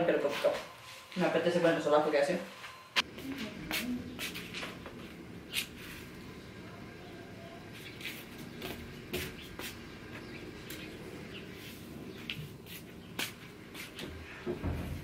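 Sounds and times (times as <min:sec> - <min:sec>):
bicycle and scooter knocks and rattles: 0:14.4 - 0:15.0.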